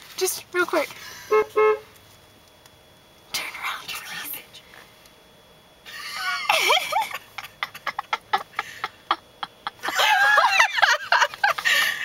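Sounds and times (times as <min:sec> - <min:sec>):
high-pitched squealing laughter: 0:05.9 - 0:12.0.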